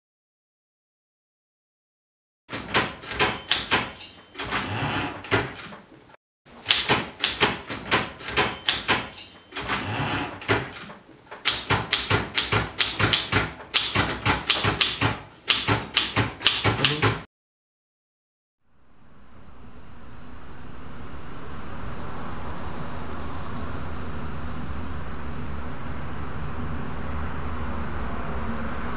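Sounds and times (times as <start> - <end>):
manual typewriter keys clattering: 2.5 - 5.9, 6.5 - 17.3.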